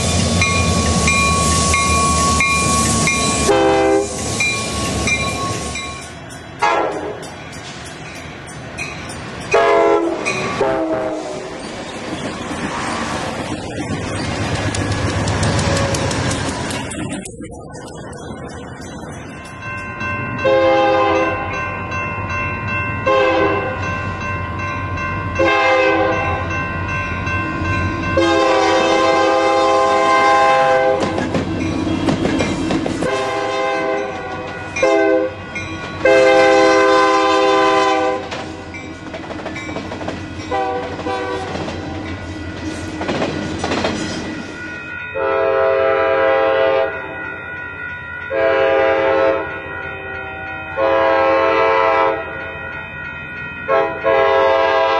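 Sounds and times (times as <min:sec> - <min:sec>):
locomotive engines: 0:00.0 - 0:23.0
locomotive air horn blasts: 0:03.3 - 0:04.2, 0:06.6 - 0:07.2, 0:09.6 - 0:11.5, 0:20.4 - 0:21.6, 0:23.1 - 0:23.8, 0:25.4 - 0:26.4, 0:28.2 - 0:31.1, 0:33.0 - 0:35.4, 0:36.0 - 0:38.3, 0:40.5 - 0:41.5, 0:45.2 - 0:47.0, 0:48.3 - 0:49.5, 0:50.8 - 0:52.2, 0:53.7 - 0:54.9
second train horn blasts: 0:03.4 - 0:04.2, 0:06.6 - 0:07.2, 0:09.6 - 0:11.5, 0:20.4 - 0:21.4, 0:25.4 - 0:26.4, 0:28.2 - 0:31.1, 0:33.0 - 0:35.4, 0:36.1 - 0:38.3, 0:40.5 - 0:41.5, 0:45.2 - 0:47.0, 0:48.3 - 0:49.5, 0:50.8 - 0:52.2, 0:53.7 - 0:54.9
wheels clattering over rails: 0:13.4 - 0:19.1, 0:38.2 - 0:44.5.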